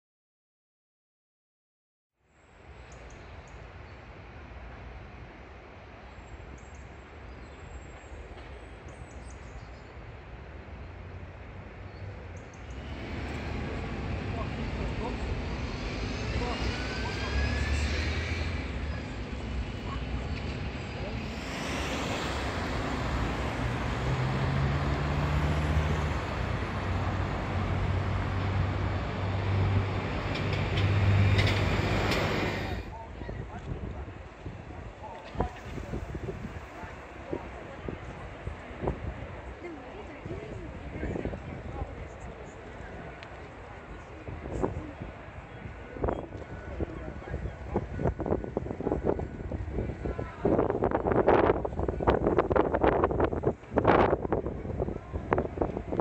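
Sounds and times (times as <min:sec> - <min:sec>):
road noise: 0:02.4 - 0:56.0
outdoor background rumble: 0:11.9 - 0:45.7
vehicle engines humming: 0:12.5 - 0:32.9.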